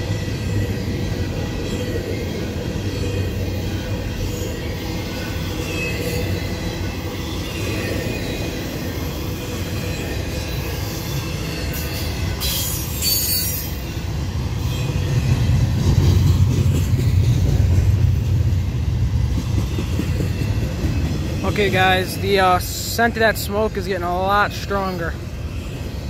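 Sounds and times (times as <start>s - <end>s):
freight train rumbling past: 0.0s - 26.0s
wheel squeals: 4.4s - 14.0s.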